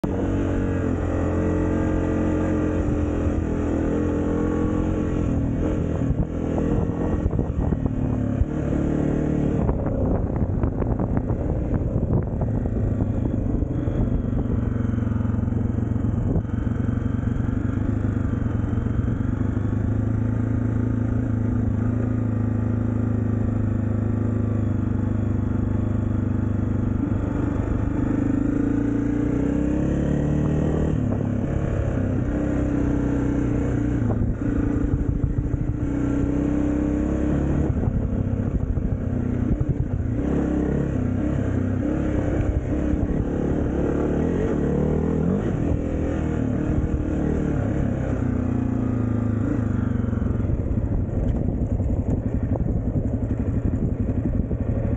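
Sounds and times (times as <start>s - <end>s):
dirt bike engine revving: 39.5s - 50.5s.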